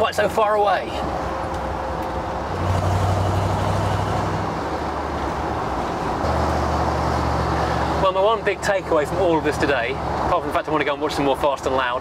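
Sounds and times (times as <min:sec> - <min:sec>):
road and wind noise: 0:00.0 - 0:12.0.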